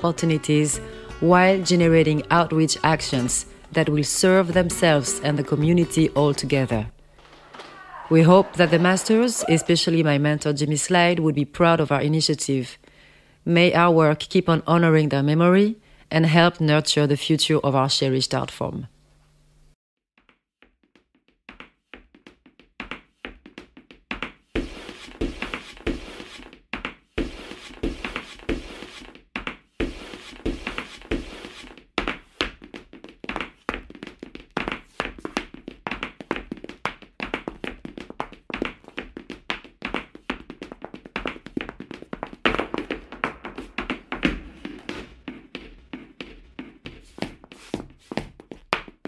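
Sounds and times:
tap shoes striking floor: 20.2s - 49.0s.

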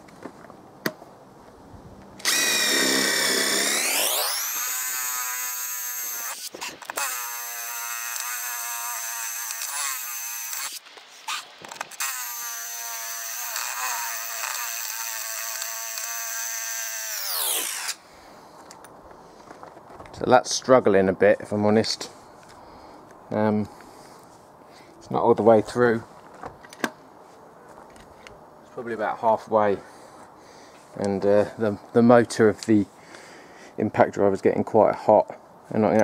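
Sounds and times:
impact driver motor whining: 2.2s - 18.0s.

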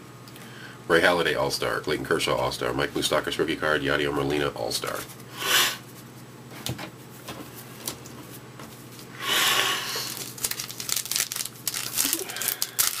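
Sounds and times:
foil wrapper rustling: 9.9s - 13.0s
small crinkling clicks: 10.1s - 13.0s.

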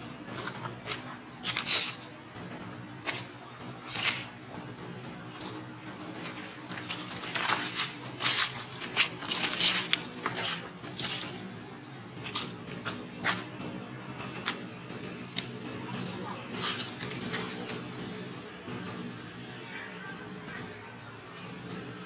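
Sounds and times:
dry leaves crackling and rustling: 3.0s - 4.4s, 5.2s - 18.0s.

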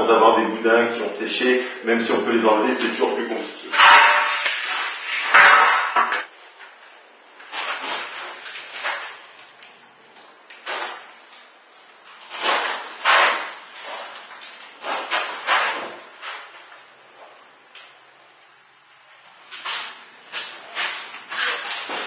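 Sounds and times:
scraping on tiled floor: 3.7s - 6.3s, 12.1s - 16.5s, 19.5s - 22.0s.

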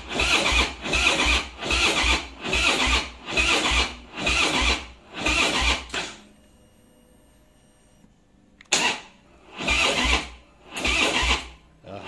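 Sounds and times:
motorcycle starter cranking slowly: 0.0s - 6.1s, 8.7s - 11.6s.

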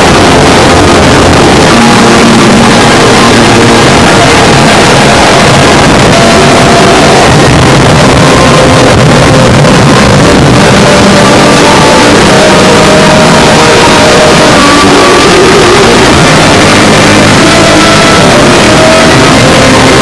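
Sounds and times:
distorted noise wall: 0.0s - 20.0s.

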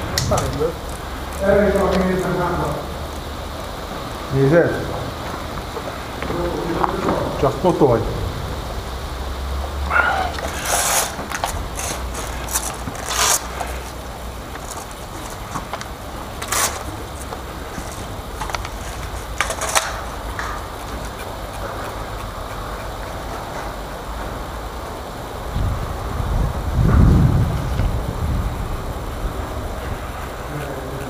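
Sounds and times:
wind rumbling on microphone: 0.0s - 19.4s, 20.0s - 31.0s.

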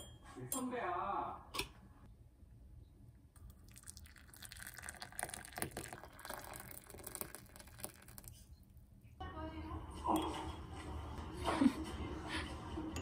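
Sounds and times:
faint running water: 3.5s - 8.5s.

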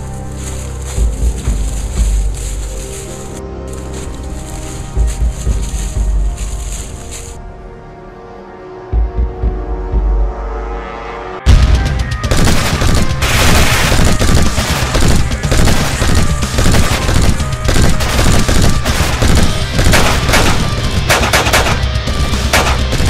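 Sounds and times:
background music: 0.0s - 23.0s
rapid gunfire: 12.2s - 23.0s.

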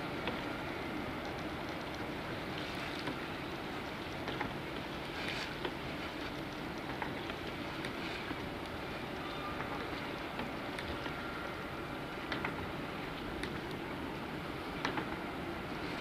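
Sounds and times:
rushing water noise: 0.0s - 16.0s
faint ticks: 1.2s - 11.2s.

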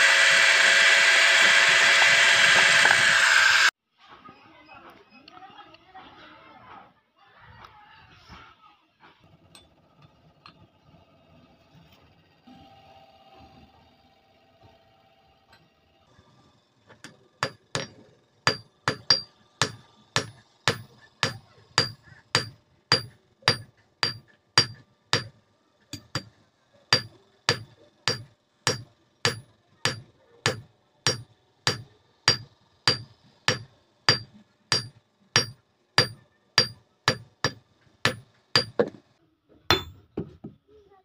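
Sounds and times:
hammer ringing on anvil: 17.4s - 25.3s, 26.9s - 38.9s, 39.7s - 40.0s.

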